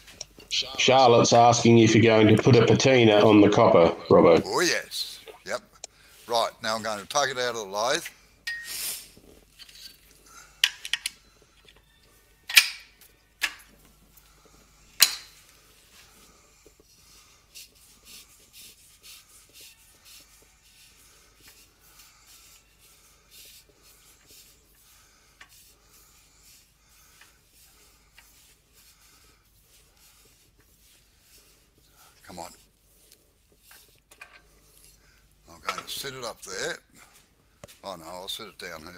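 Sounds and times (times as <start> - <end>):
faint ticks and rubbing: 9.0 - 12.4, 13.0 - 38.9.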